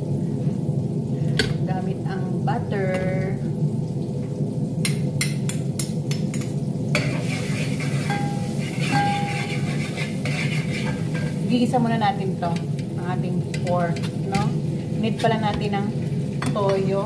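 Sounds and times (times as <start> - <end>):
steady low hum: 0.0 - 17.0
garlic sizzling in butter: 1.2 - 17.0
metal spoon clinking against pot: 7.9 - 11.4.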